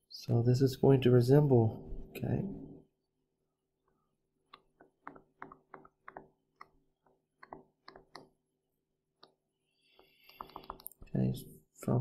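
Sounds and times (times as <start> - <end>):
stylus ticking on tablet screen: 4.4 - 8.4, 9.2 - 11.0.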